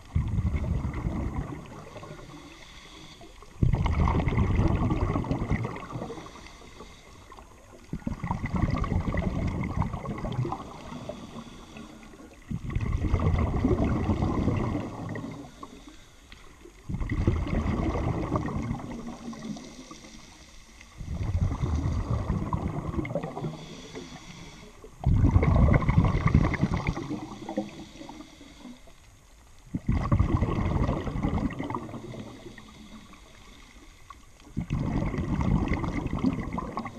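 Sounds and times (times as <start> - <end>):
diver inhaling through regulator: 1.6 - 7.4, 10.4 - 12.5, 13.8 - 16.6, 17.7 - 29.0, 30.9 - 36.9
bubbling diver exhalations: 3.6 - 6.4, 8.0 - 11.4, 12.5 - 15.6, 16.9 - 19.9, 21.0 - 24.2, 25.0 - 27.9, 29.8 - 32.6, 34.6 - 36.9.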